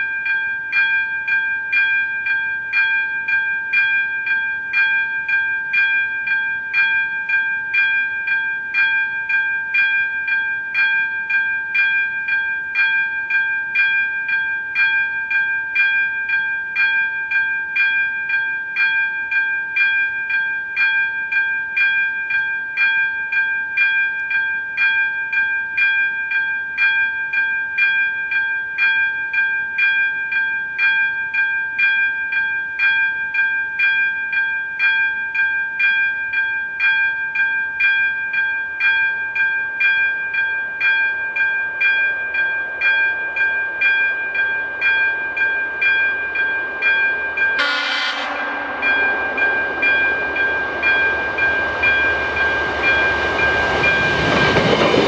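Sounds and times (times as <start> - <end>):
level-crossing bell ringing: 0.0 - 55.0
approaching railcar rush: 38.6 - 55.0.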